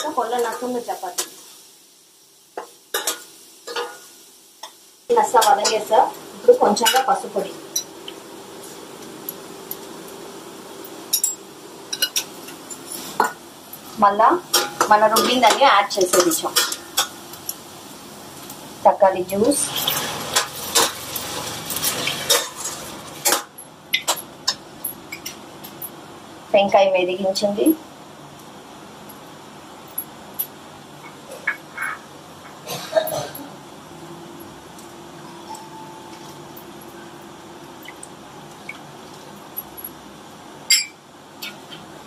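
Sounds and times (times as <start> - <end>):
low hiss: 0.0 - 22.5, 23.2 - 42.0
frying sizzle: 0.0 - 42.0
metal clinking and scraping: 10.8 - 13.9, 19.6 - 26.0.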